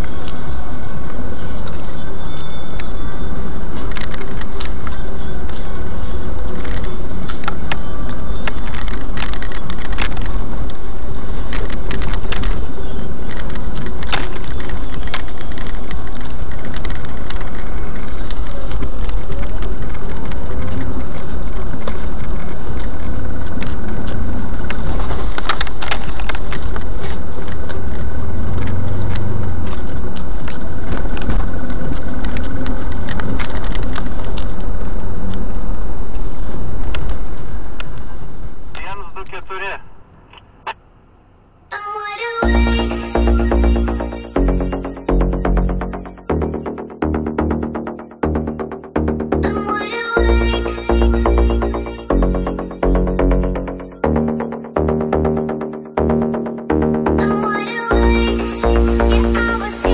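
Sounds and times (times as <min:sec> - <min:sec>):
car engine low rumble: 0:00.0 - 0:39.2
small clicks and rattles: 0:11.4 - 0:28.0, 0:28.6 - 0:35.4.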